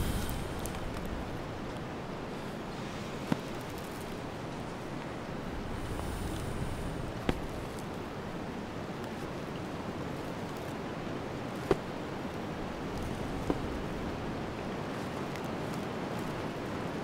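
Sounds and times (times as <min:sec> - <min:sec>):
wind hissing: 0:00.0 - 0:08.9.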